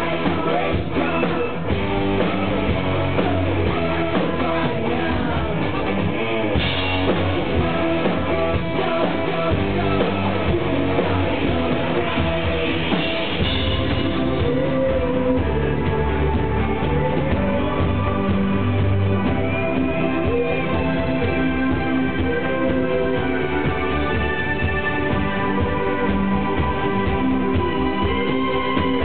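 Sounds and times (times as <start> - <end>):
drum kit steady beat: 0.0 - 29.0
person singing: 0.0 - 29.0.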